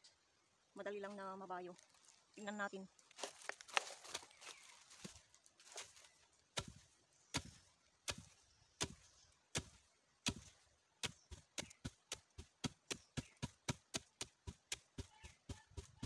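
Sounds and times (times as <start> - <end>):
wooden pestle pounding in mortar: 11.0 - 16.0.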